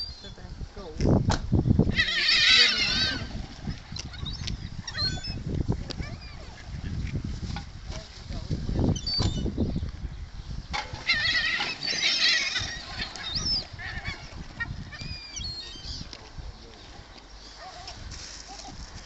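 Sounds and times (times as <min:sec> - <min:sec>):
gulls calling shrilly: 0:01.8 - 0:06.9, 0:10.9 - 0:16.1.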